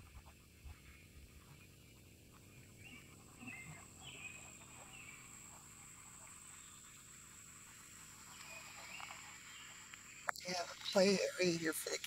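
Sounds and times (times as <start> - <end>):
bird chirps: 0.9 - 5.5.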